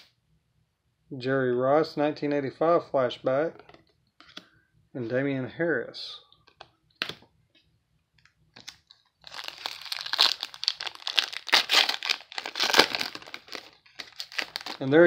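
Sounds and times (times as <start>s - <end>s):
foil wrapper crinkling and tearing: 8.6s - 15.0s.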